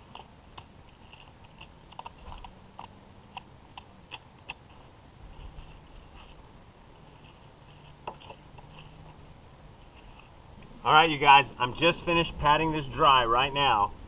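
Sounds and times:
knife scraping fish spine: 0.0s - 4.8s.

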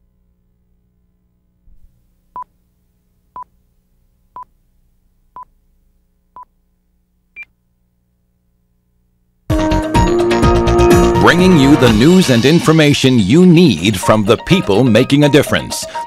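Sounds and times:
faint steady hum: 0.0s - 9.5s.

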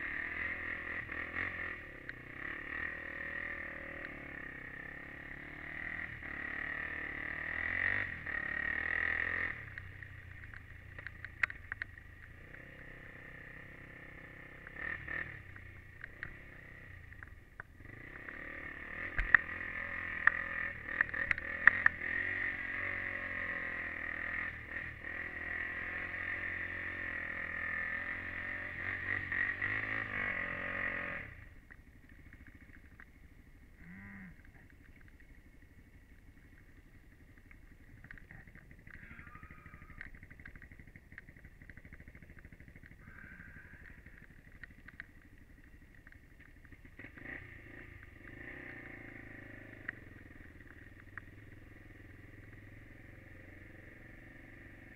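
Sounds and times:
atv engine running: 0.0s - 54.9s
small clicks: 4.0s - 4.2s, 9.6s - 12.6s, 15.4s - 16.4s, 17.0s - 18.4s, 19.1s - 19.5s, 20.2s - 22.0s, 31.6s - 33.2s, 34.2s - 48.2s, 49.2s - 51.6s.

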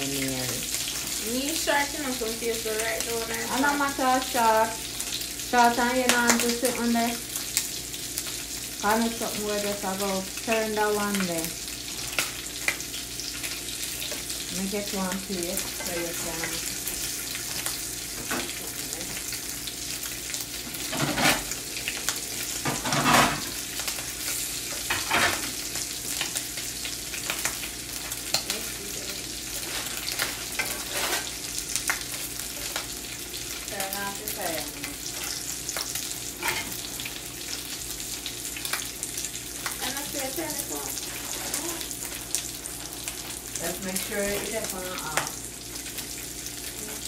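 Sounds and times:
bacon sizzling in a frying pan: 0.0s - 47.0s
spatula scraping pan: 29.5s - 31.5s, 41.0s - 41.7s.

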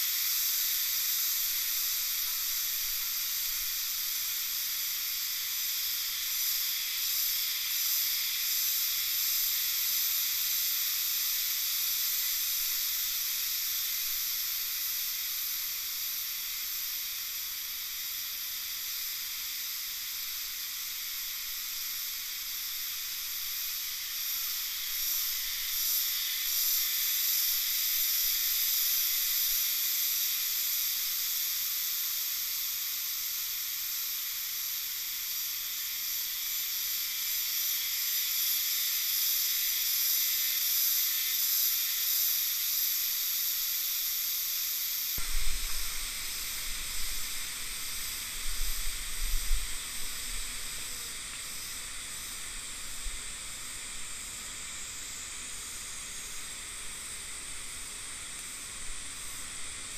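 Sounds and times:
high-pitched insect chorus: 0.0s - 59.9s.

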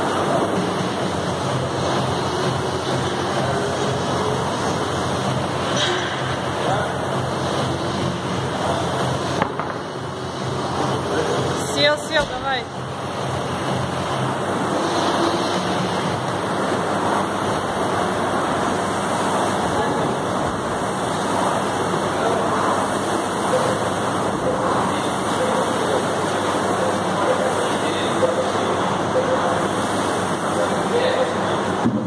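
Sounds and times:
rowing machine fan whooshing: 0.0s - 31.8s.

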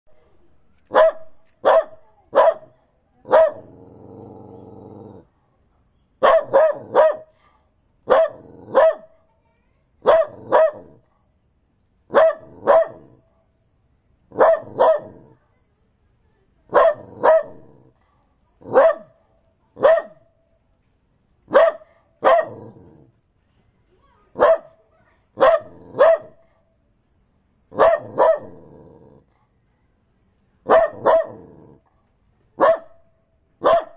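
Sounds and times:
dog barking: 0.9s - 3.8s, 6.2s - 7.4s, 8.0s - 9.2s, 10.0s - 11.0s, 12.1s - 13.2s, 14.3s - 15.4s, 16.7s - 17.9s, 18.6s - 19.2s, 19.8s - 20.3s, 21.5s - 23.0s, 24.3s - 24.8s, 25.4s - 26.6s, 27.7s - 28.8s, 30.6s - 31.8s, 32.6s - 33.9s
dog growling: 3.5s - 5.3s, 8.2s - 8.8s, 22.3s - 23.2s, 28.0s - 29.4s, 31.0s - 31.9s.

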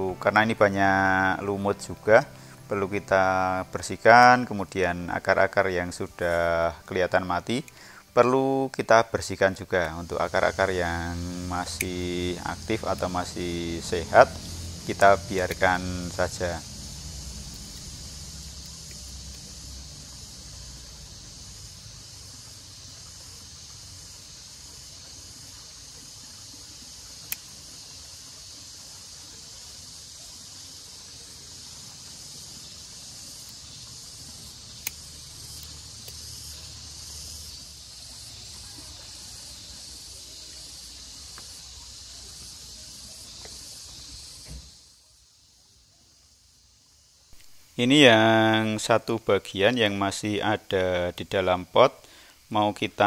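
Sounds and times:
insect chorus: 0.0s - 53.0s
pruning shears snipping: 11.3s - 16.4s.

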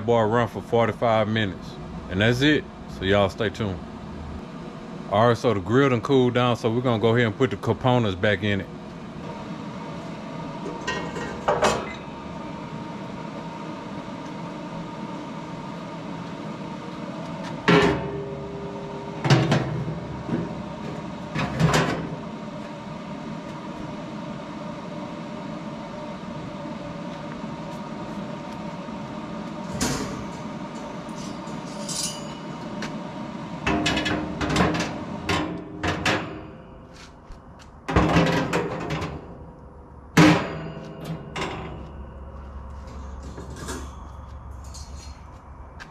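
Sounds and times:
steady hum: 0.0s - 45.9s
metal parts clanking: 31.1s - 32.6s, 42.8s - 45.4s.

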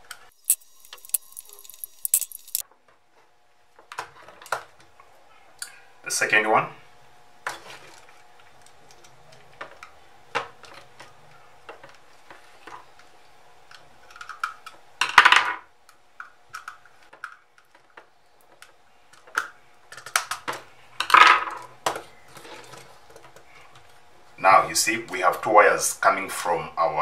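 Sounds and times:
faint steady hum: 0.0s - 27.0s
screwdriver turning screws: 0.4s - 2.6s.

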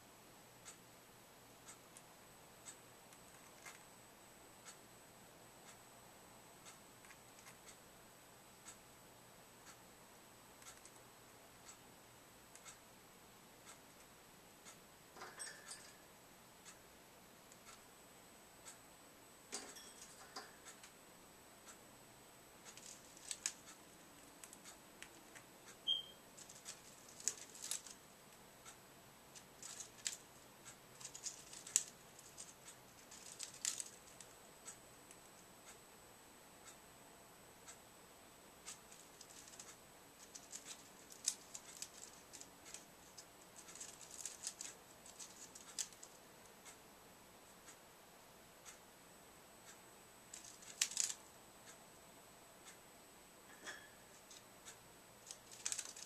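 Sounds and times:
bird claws scratching cage wire: 26.4s - 28.0s, 29.5s - 30.2s, 31.0s - 34.3s, 39.0s - 42.8s, 43.6s - 46.1s, 50.4s - 51.2s, 55.3s - 56.0s.

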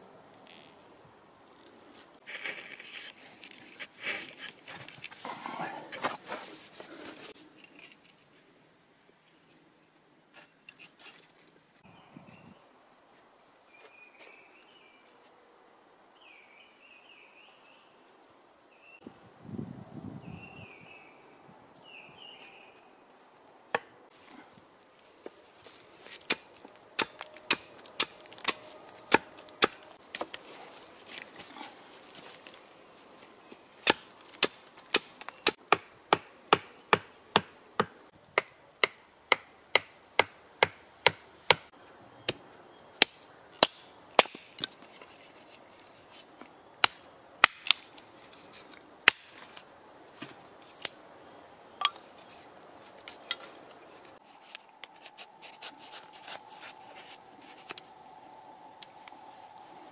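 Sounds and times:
hatchet chopping wood: 26.2s - 29.8s, 33.8s - 41.7s, 43.0s - 44.7s, 46.8s - 47.8s, 49.0s - 49.4s.

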